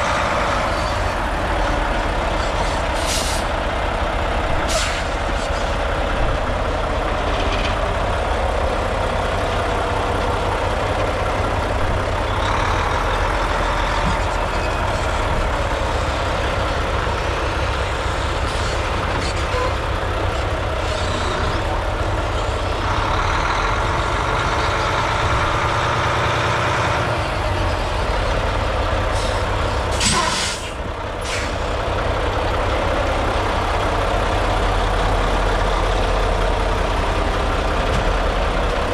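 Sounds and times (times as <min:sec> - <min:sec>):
diesel engine idling: 0:00.0 - 0:38.9
short air hiss: 0:29.2 - 0:31.6.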